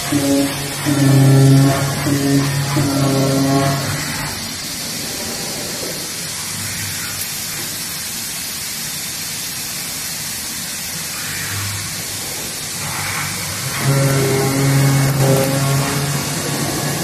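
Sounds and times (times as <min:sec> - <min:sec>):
cutting machine hissing: 0:00.0 - 0:08.2, 0:10.4 - 0:17.0.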